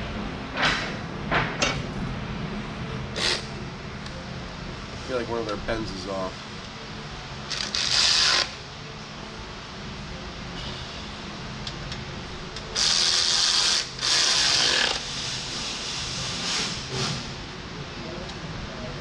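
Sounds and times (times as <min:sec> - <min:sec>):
steady low hum: 0:00.0 - 0:19.0
rasping mechanical noise: 0:02.8 - 0:04.2, 0:06.4 - 0:08.8, 0:10.4 - 0:17.6.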